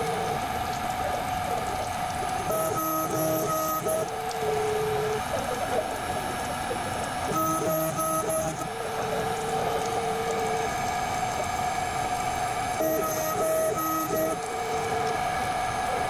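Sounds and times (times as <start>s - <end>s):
cnc mill machine whine: 0.0s - 16.0s
stepper motor tones: 1.8s - 5.3s, 7.2s - 16.0s.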